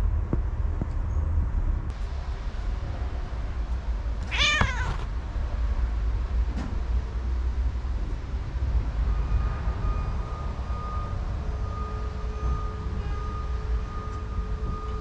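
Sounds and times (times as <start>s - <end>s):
steady low rumble: 0.0s - 15.0s
cat meowing: 4.2s - 5.1s.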